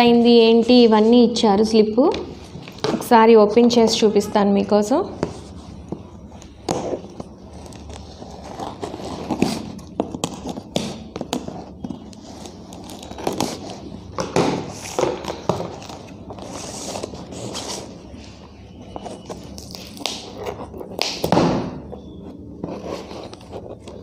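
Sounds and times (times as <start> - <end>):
scissors cutting packing tape: 7.7 - 13.7, 19.0 - 21.4.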